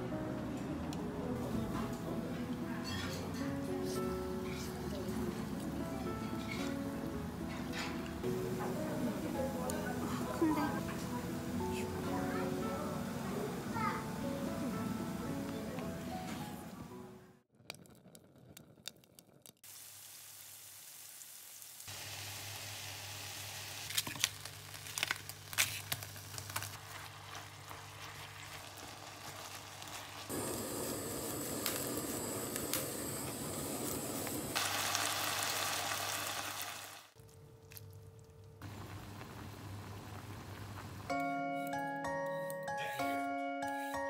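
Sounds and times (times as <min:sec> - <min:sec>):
food sizzling in a frying pan: 0:19.6 - 0:37.2.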